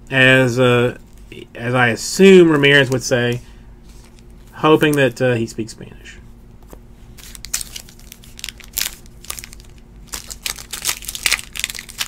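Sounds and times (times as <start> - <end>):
foil wrapper crinkling and tearing: 7.2 - 12.0.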